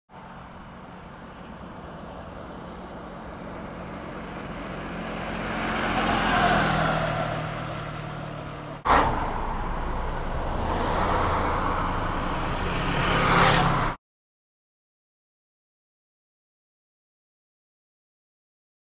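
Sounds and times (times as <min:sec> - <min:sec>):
steady traffic noise: 0:00.1 - 0:14.0
vehicle passing: 0:00.2 - 0:14.0.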